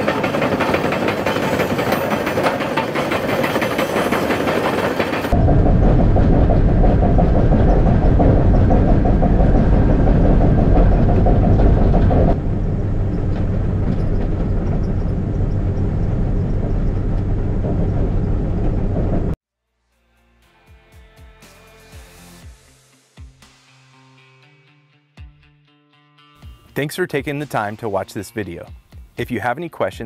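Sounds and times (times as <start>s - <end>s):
bulldozer cab running noise: 0.0s - 19.4s.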